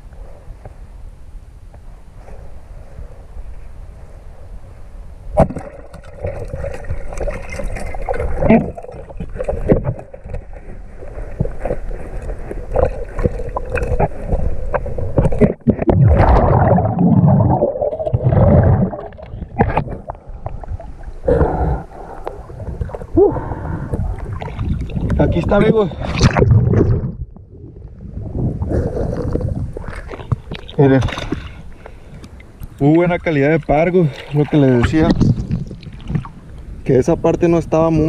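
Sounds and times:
sharp underwater clicks and knocks: 0:05.4 - 0:16.7, 0:18.0 - 0:20.7, 0:29.3 - 0:32.8, 0:34.2 - 0:36.7
water churning: 0:05.4 - 0:27.4, 0:28.3 - 0:36.6
muffled underwater rumble: 0:06.0 - 0:37.0.

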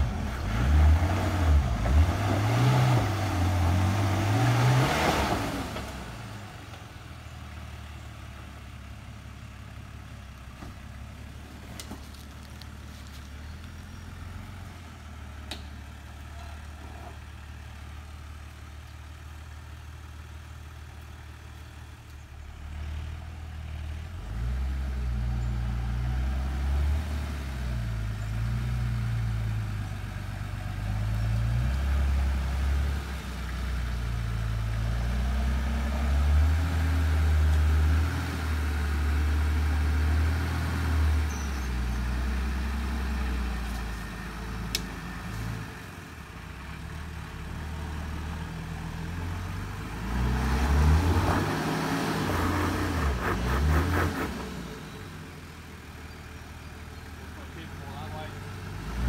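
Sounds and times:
truck engine revving: 0:00.0 - 0:06.5, 0:22.6 - 0:55.4, 0:57.2 - 0:59.0.

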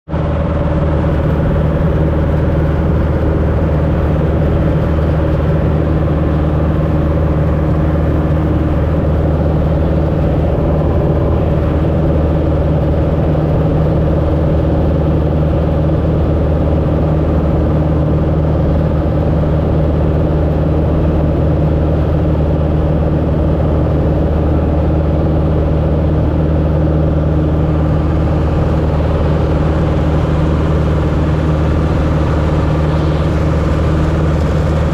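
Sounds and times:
airplane engine droning in cockpit: 0:00.0 - 0:34.9.

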